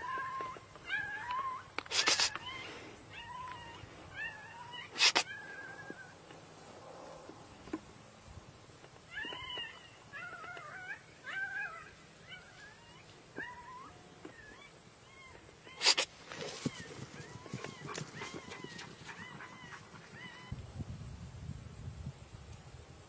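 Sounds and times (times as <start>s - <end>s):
coyote yipping and whining: 0.0s - 6.3s, 9.1s - 20.6s.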